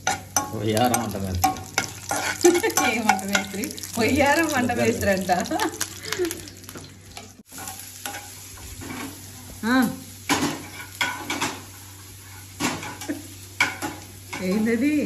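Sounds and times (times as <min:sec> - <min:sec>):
spatula scraping pan: 0:00.0 - 0:03.5, 0:07.2 - 0:09.3
oil sizzling in frying pan: 0:00.0 - 0:15.0.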